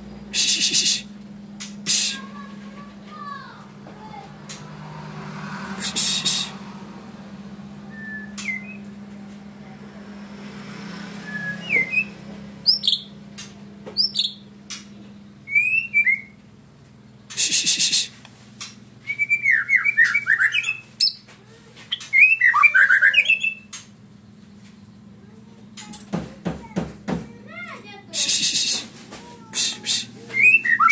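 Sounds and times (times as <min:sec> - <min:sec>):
sharp bird clicks: 0:01.6 - 0:01.9, 0:12.7 - 0:15.0, 0:23.3 - 0:24.0
bird singing whistled song: 0:07.9 - 0:08.9, 0:11.2 - 0:13.1, 0:14.0 - 0:14.5, 0:15.4 - 0:16.4, 0:19.0 - 0:21.3, 0:21.9 - 0:23.7, 0:30.0 - 0:30.9
harsh rattling bird call: 0:12.6 - 0:14.9, 0:17.2 - 0:18.7.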